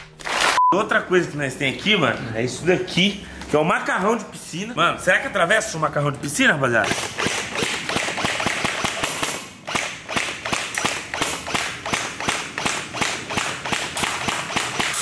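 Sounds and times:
airsoft rifle firing rapidly: 0:06.8 - 0:15.0
pellets hitting foam and stone: 0:10.0 - 0:15.0.

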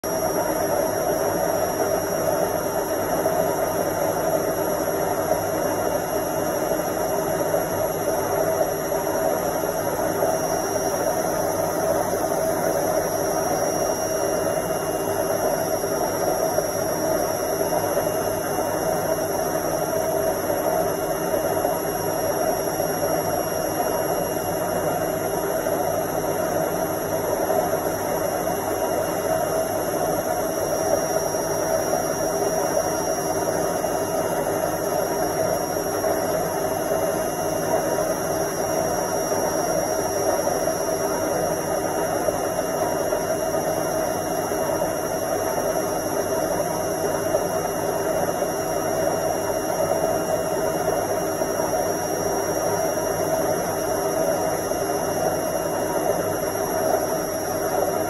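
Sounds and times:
washing machine spinning: 0:00.0 - 0:58.0.

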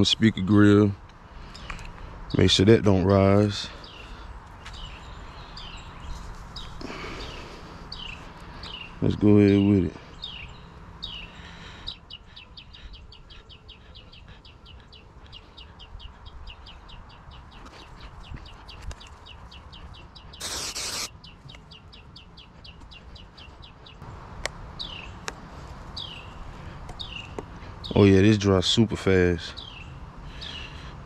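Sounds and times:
bird chirping rapidly: 0:02.3 - 0:24.0, 0:24.8 - 0:25.2, 0:25.9 - 0:26.4, 0:27.0 - 0:30.9
aerosol spray hissing: 0:20.4 - 0:21.1.

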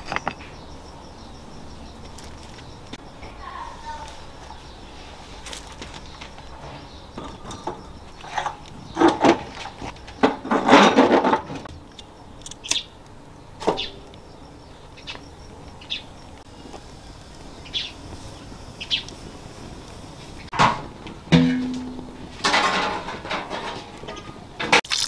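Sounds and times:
small birds chirping: 0:00.0 - 0:10.5, 0:11.6 - 0:20.6
metal clattering and knocks: 0:06.6 - 0:11.7, 0:20.5 - 0:24.8.

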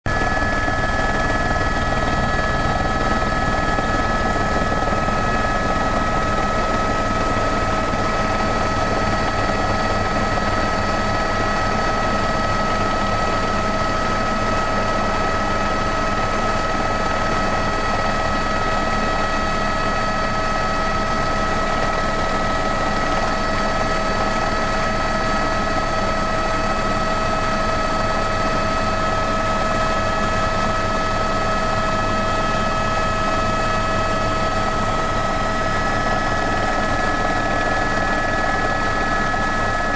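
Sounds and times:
helicopter engine and rotor drone: 0:00.0 - 0:39.9
high turbine whine: 0:00.1 - 0:39.9.

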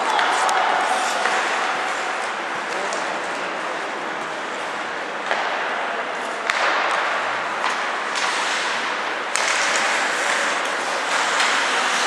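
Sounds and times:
hockey sticks and puck clacking: 0:00.0 - 0:12.0.

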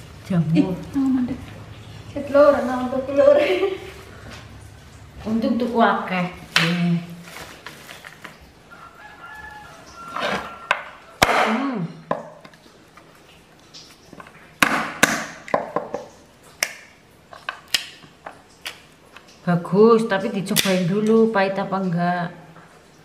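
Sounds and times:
distant rooster crowing: 0:08.6 - 0:11.6
nut shells cracking on wood: 0:14.2 - 0:19.3.

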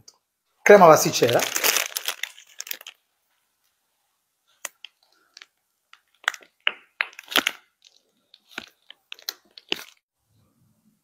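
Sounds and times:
plastic piping bag crinkling: 0:01.0 - 0:03.0, 0:04.6 - 0:10.1.

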